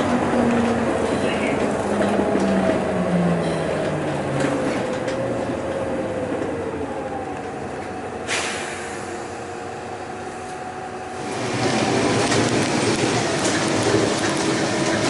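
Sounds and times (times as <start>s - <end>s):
bus engine whine: 0.0s - 15.0s
short hiss of air: 8.3s - 9.3s.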